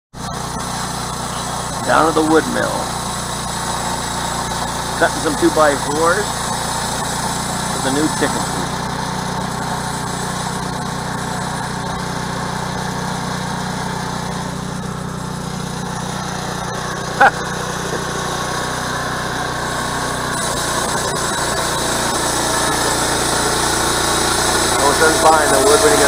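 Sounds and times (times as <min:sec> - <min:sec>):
bandsaw mill cutting log: 0:00.2 - 0:26.0.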